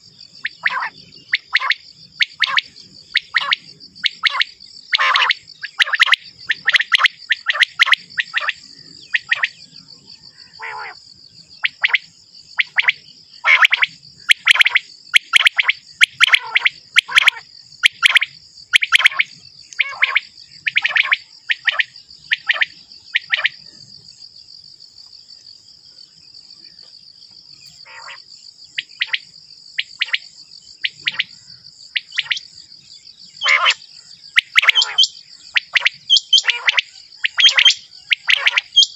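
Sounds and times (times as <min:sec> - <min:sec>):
quail calling: 0:00.4 - 0:09.6, 0:10.4 - 0:11.0, 0:11.6 - 0:23.6, 0:27.8 - 0:28.2, 0:30.8 - 0:31.3, 0:33.4 - 0:38.9.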